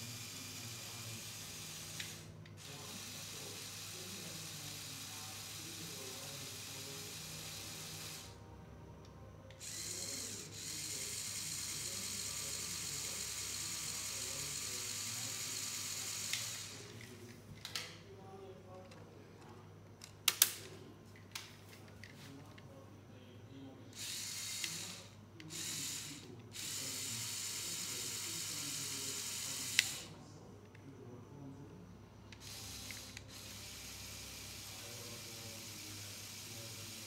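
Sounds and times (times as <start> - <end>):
toy electric motor and gears whirring: 0.0 - 8.4, 9.5 - 17.2, 23.9 - 30.2, 32.4 - 37.0
sharp plastic clicks: 20.0 - 21.5.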